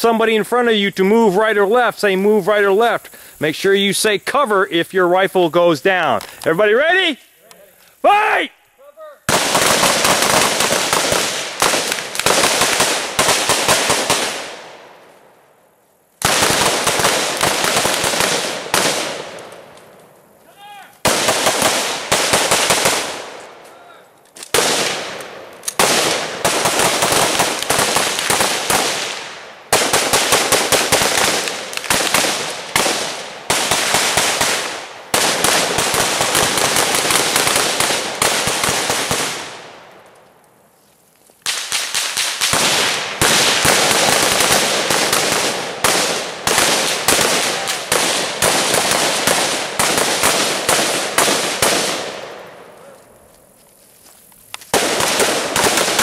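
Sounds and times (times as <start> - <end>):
rifles firing in a volley: 9.3 - 14.9, 16.2 - 19.7, 20.6 - 39.8, 41.4 - 52.6, 54.7 - 56.0.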